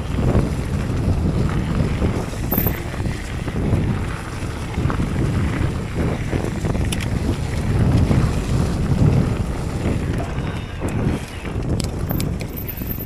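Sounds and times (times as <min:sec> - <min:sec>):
wind buffeting microphone: 0:00.0 - 0:13.0
bike clicks and rattles: 0:02.3 - 0:03.3, 0:06.4 - 0:08.2, 0:10.8 - 0:13.0.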